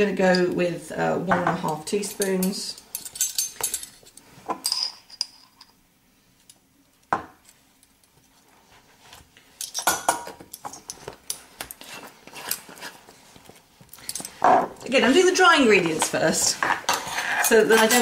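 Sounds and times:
metal spoons clinking: 1.7 - 5.8, 9.6 - 11.4.

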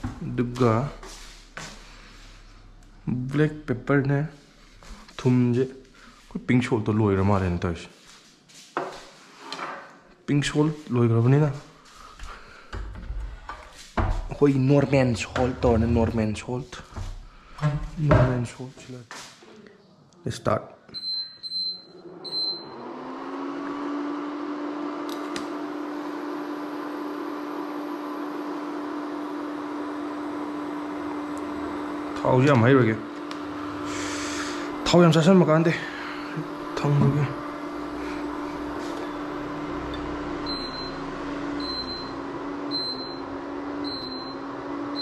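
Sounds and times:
cooling fan humming: 0.0 - 6.4, 22.1 - 45.0
control panel beep: 21.0 - 22.8, 40.4 - 41.0, 41.6 - 43.2.

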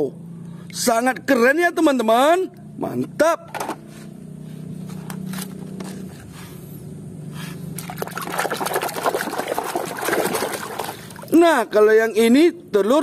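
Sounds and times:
low steady hum: 0.0 - 13.0
hand splashing water in basin: 7.8 - 11.4.

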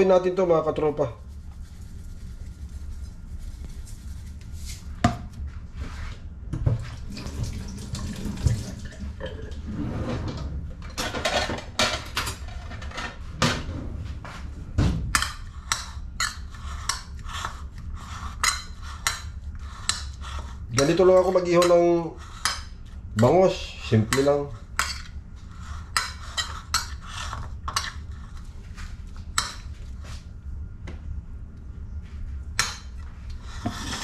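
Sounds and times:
knocks and rustling on countertop: 5.0 - 5.4, 14.3 - 15.2
metal spoon scraping ceramic plate: 25.8 - 28.3.

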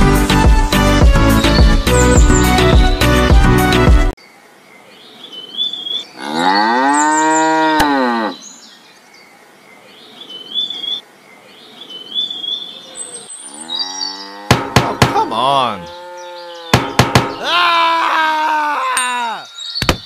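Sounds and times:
music: 0.0 - 4.2
cow mooing: 6.2 - 8.4, 13.5 - 14.7, 15.8 - 16.9.

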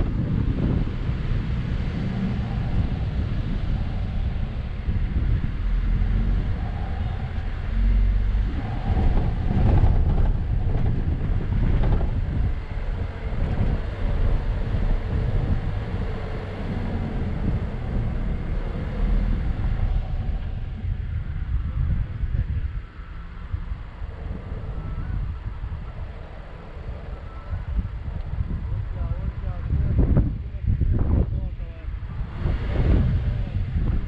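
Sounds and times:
car engine working under load: 0.0 - 34.0.

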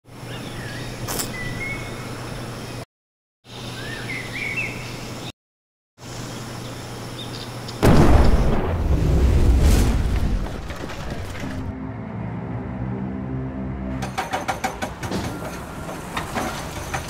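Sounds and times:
birds chirping: 0.1 - 2.8, 3.5 - 5.3.

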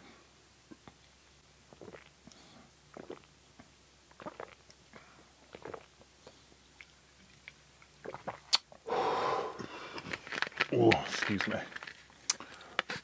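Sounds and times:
person gulping water: 1.7 - 2.2, 2.9 - 6.1, 6.8 - 8.8.

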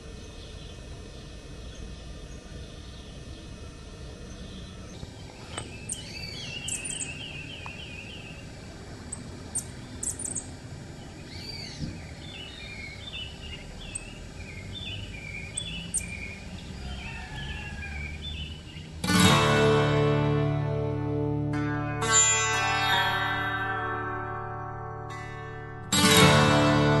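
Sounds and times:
birds calling and chirping: 0.0 - 19.0
trilled bird notes: 0.1 - 27.0.

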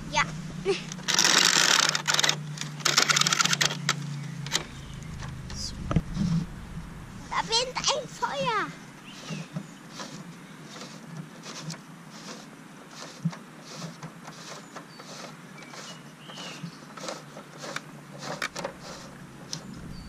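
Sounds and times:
toy ladder mechanism clicking: 0.9 - 4.7, 9.2 - 19.7.

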